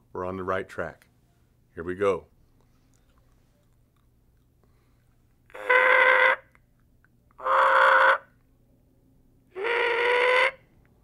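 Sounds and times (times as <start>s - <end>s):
turkey mouth call notes: 5.5s - 6.6s, 7.4s - 8.3s, 9.6s - 10.6s.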